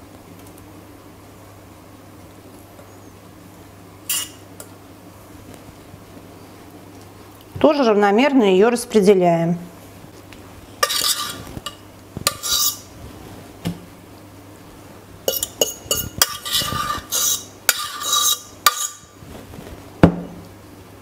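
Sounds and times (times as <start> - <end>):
fork scraping metal pot: 4.1 - 4.4, 10.8 - 12.9, 15.3 - 19.1.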